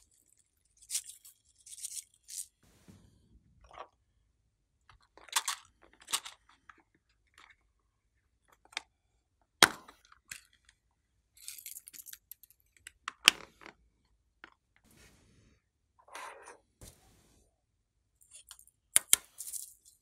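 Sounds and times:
light crackling: 0:02.6 - 0:03.4.

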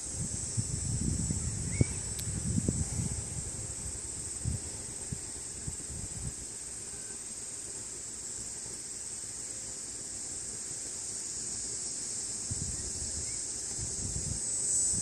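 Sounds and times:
shrill insect chorus: 0:00.0 - 0:15.0.

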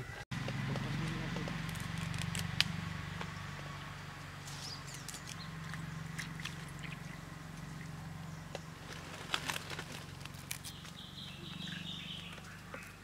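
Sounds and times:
leaves swished in water: 0:04.4 - 0:08.0, 0:08.8 - 0:11.0
light water splashes: 0:05.0 - 0:10.6.

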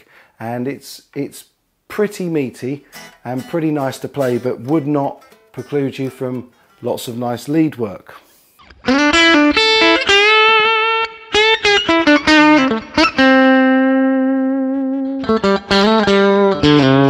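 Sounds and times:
electric guitar lead lines: 0:08.6 - 0:17.0.

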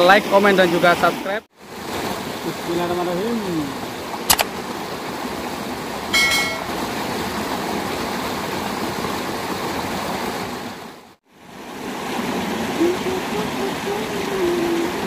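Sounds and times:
water pouring into creek pool: 0:00.0 - 0:15.0
sharp click: 0:04.3 - 0:04.5
short ringing chime: 0:06.2 - 0:06.7.

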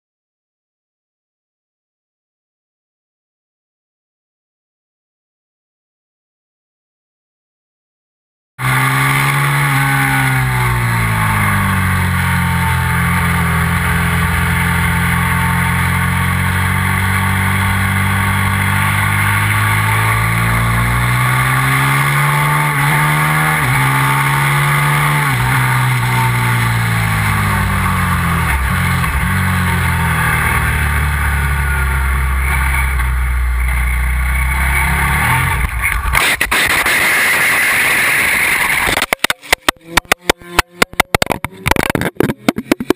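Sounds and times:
motorcycle engine at speed: 0:08.6 - 0:42.9.

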